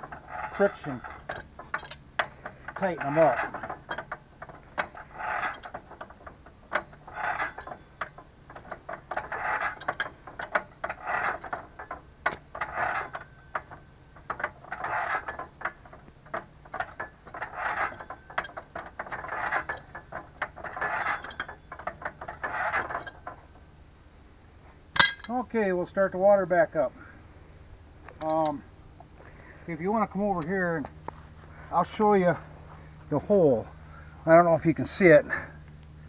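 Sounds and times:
metal threads rasping and clicking: 0:00.0 - 0:23.7.

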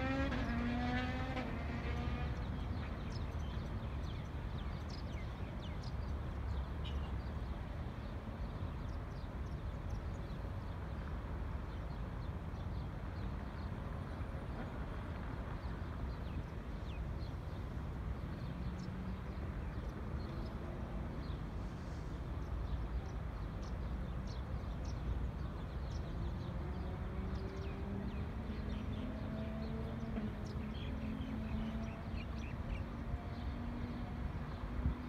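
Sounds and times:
small birds chirping: 0:02.3 - 0:07.5, 0:21.2 - 0:34.0
faint engine hum: 0:08.8 - 0:35.0.

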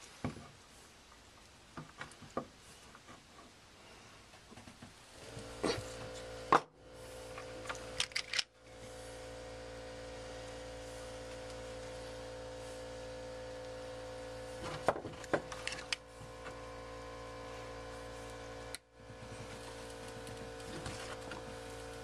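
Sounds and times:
steady electrical hum: 0:00.0 - 0:22.0
crimping tool clicking and snapping: 0:07.7 - 0:08.5.

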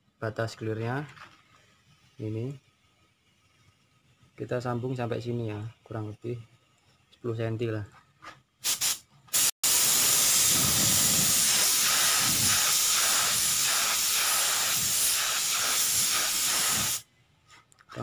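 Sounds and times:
spray gun hissing: 0:08.6 - 0:17.0.

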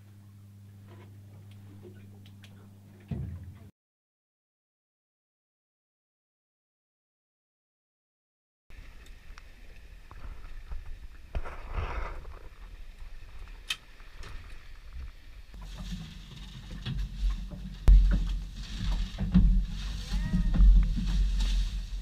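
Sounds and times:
boat engine rumble: 0:00.0 - 0:03.7, 0:08.7 - 0:22.0
water noise: 0:08.7 - 0:22.0.

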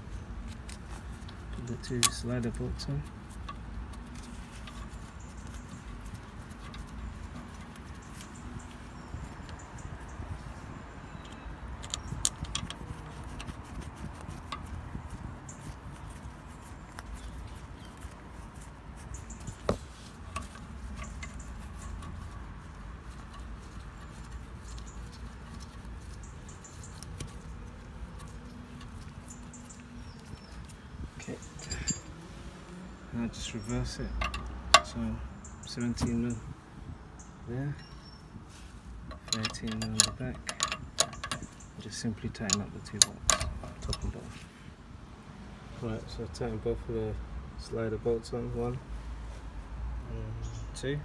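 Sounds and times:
faint clicks and scratching: 0:00.1 - 0:09.8, 0:11.0 - 0:32.1, 0:39.0 - 0:44.5.

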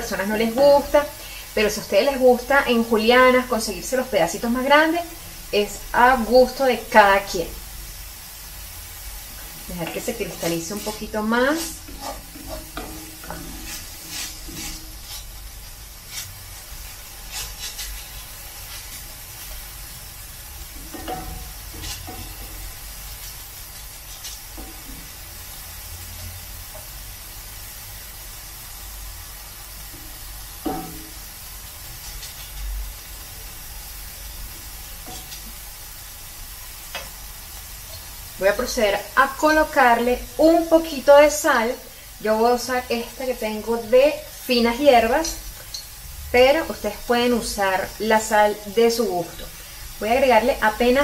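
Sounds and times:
vegetables sizzling in oil: 0:00.0 - 0:51.0
wooden spoon scraping pan: 0:09.3 - 0:19.7, 0:20.7 - 0:25.2.

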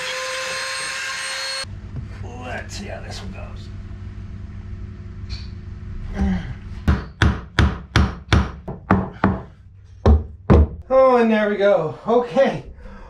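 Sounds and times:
hammer striking wood: 0:06.8 - 0:10.8.

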